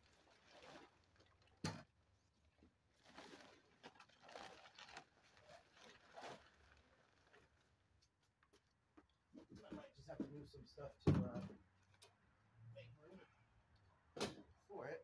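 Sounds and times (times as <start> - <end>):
tent fabric rustling: 2.9 - 7.6.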